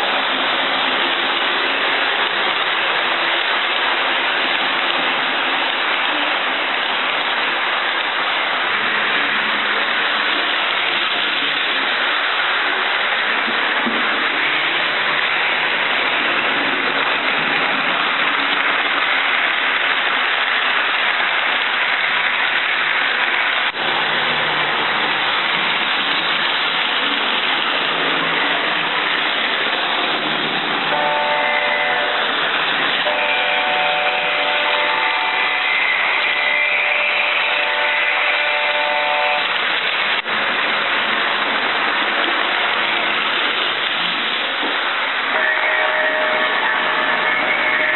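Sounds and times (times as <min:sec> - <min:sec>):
model train running hiss: 0:00.0 - 0:27.3, 0:28.0 - 0:47.9
multi-tone train horn: 0:30.9 - 0:39.6, 0:45.3 - 0:47.9.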